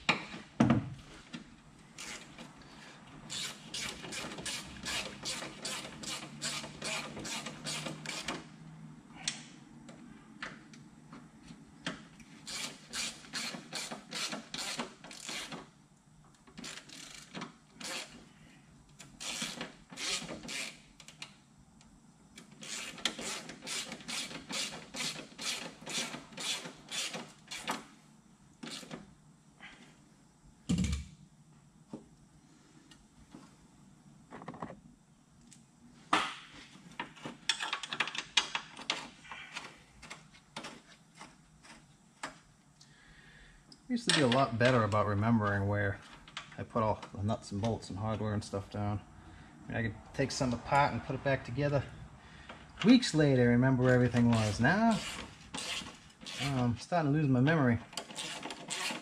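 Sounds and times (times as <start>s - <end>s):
ratchet clicking: 12.4s - 15.6s, 16.6s - 18.2s, 19.0s - 21.2s, 22.4s - 27.8s, 58.0s - 59.0s.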